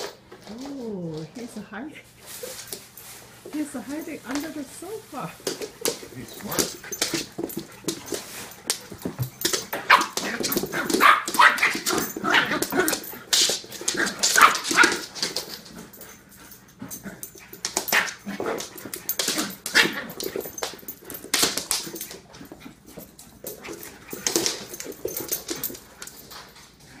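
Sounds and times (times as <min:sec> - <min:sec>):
dogs barking and yipping: 0:05.8 - 0:26.8.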